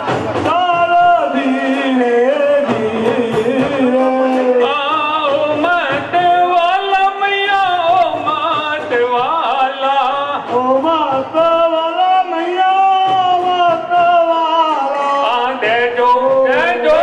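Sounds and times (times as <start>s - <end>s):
musical accompaniment: 0.0s - 17.0s
person singing: 0.0s - 17.0s.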